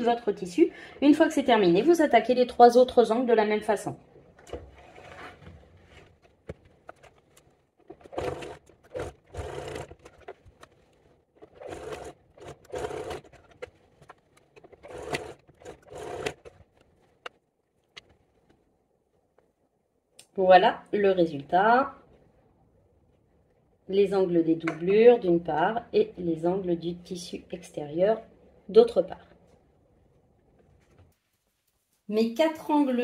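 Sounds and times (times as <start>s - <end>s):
sewing machine running: 7.9s - 10.3s, 11.4s - 13.7s, 14.8s - 16.6s.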